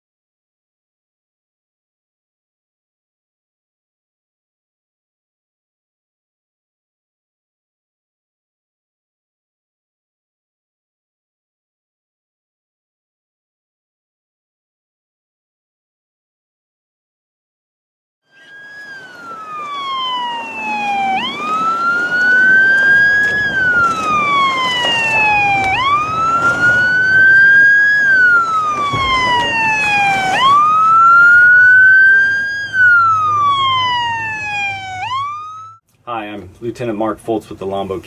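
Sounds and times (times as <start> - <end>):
emergency wail siren: 18.3 - 35.8.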